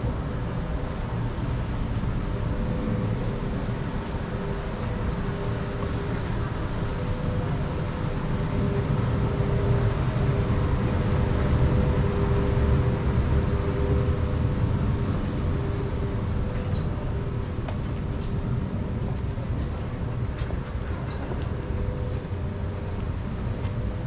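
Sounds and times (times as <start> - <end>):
low mechanical rumble with hum: 0.0 - 24.0.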